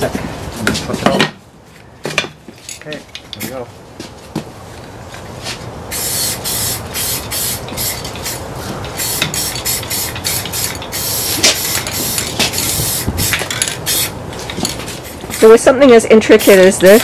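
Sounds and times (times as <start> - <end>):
aerosol spray can hissing: 5.9 - 14.2, 16.4 - 17.0.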